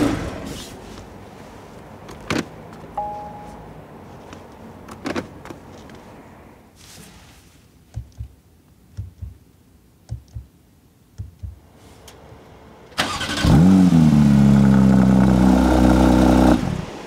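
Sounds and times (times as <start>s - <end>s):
shift paddles clicking: 7.9s - 9.4s
car engine starting and idling: 11.6s - 17.0s.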